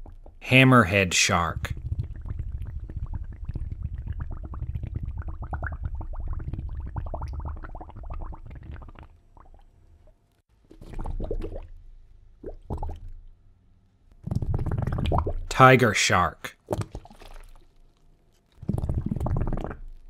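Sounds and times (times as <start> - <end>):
underwater bubbling and gurgling: 1.5 - 9.8, 10.7 - 11.8, 12.4 - 13.2, 14.2 - 15.5, 18.6 - 20.0.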